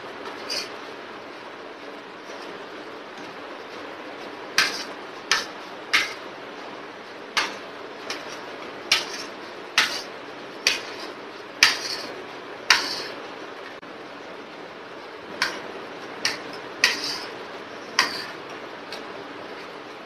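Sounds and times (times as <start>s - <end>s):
metal spoon scraping ceramic plate: 7.4s - 10.1s, 10.7s - 13.2s, 16.3s - 18.4s.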